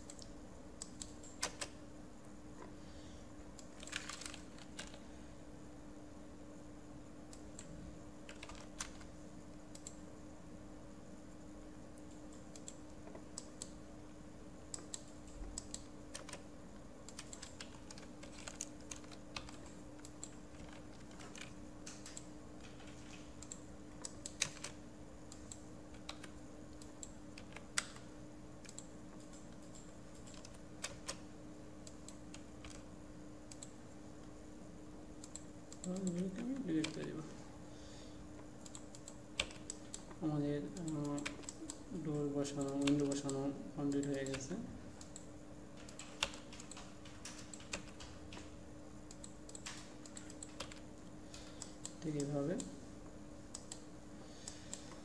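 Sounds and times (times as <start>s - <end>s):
computer keyboard typing: 0.0s - 1.8s, 3.6s - 5.0s, 7.3s - 10.0s, 12.0s - 13.8s, 14.7s - 32.9s, 33.5s - 33.8s, 35.2s - 37.2s, 38.6s - 52.8s, 53.5s - 55.0s
faint steady hum: 0.0s - 55.0s.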